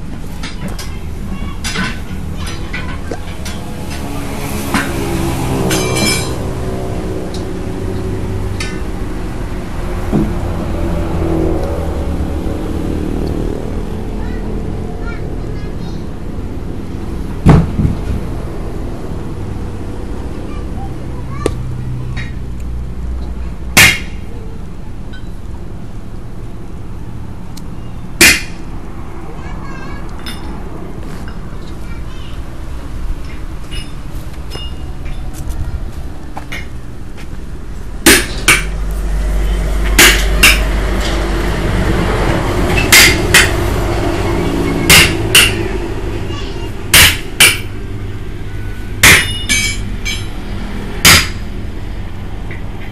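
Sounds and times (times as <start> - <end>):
low engine hum: 0.0 - 52.9
hammer ringing on metal: 42.8 - 43.7, 44.5 - 45.8, 46.9 - 47.8, 49.0 - 50.4, 51.0 - 51.4.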